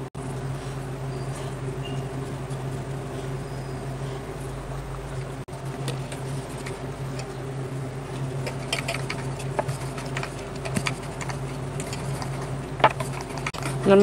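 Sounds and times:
steady low hum: 0.0s - 14.0s
rolling pin on wooden board: 8.5s - 13.7s.

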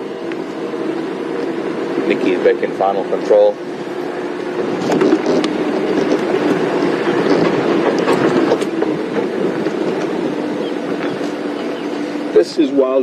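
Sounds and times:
vehicle engine and road noise: 0.0s - 13.0s
clicks and rattles: 4.8s - 10.1s.

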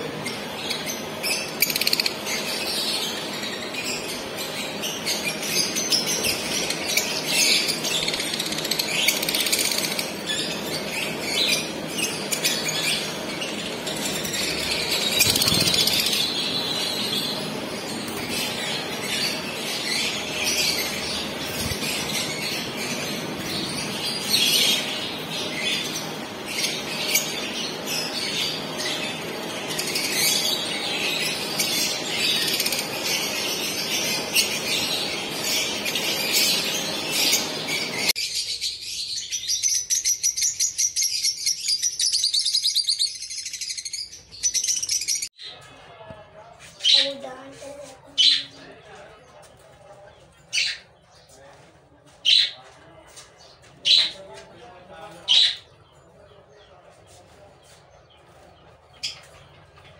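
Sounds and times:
lovebirds chirping and chattering: 0.0s - 59.9s.

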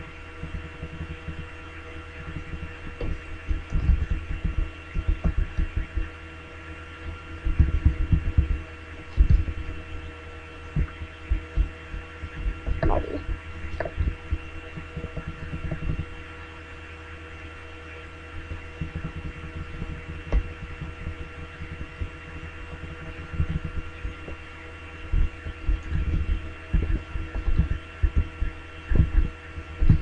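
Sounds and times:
electrical hum: 0.0s - 30.0s
soft low thumps: 7.4s - 9.7s, 10.7s - 16.1s, 25.1s - 30.0s.

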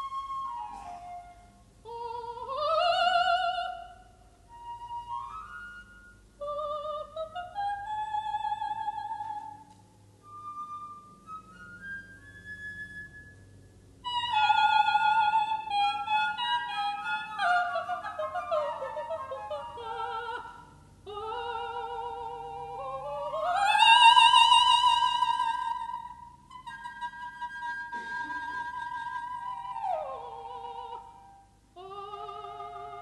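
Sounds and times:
held flute note: 0.0s - 1.6s
operatic soprano singing: 0.0s - 4.1s, 6.4s - 9.8s, 14.0s - 33.0s.

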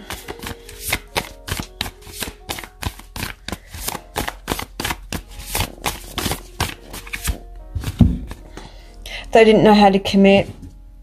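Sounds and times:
cards being shuffled: 0.0s - 8.4s.

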